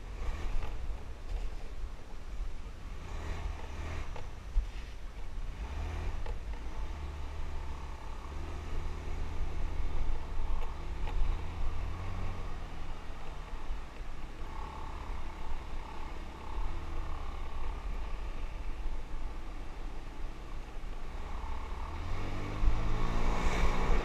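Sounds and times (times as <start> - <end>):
small motorbike engine humming: 2.8 - 24.0.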